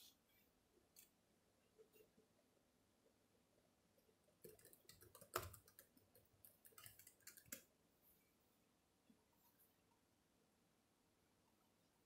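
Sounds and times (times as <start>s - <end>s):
laptop keyboard typing: 4.4s - 7.7s.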